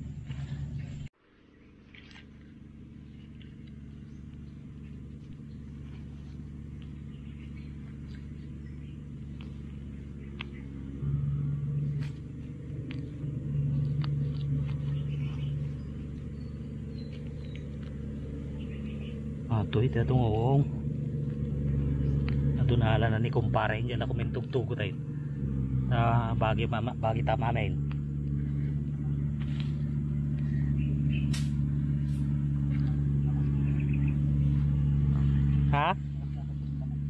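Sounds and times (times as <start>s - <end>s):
low rumble: 0.0s - 37.0s.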